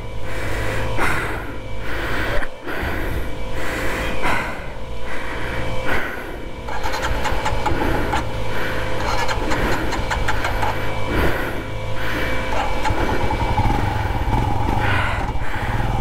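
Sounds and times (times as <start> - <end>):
low engine hum: 0.0 - 16.0
heavy gasping breaths: 0.2 - 13.6, 14.7 - 16.0
fine clicks: 6.7 - 8.3, 9.0 - 10.8.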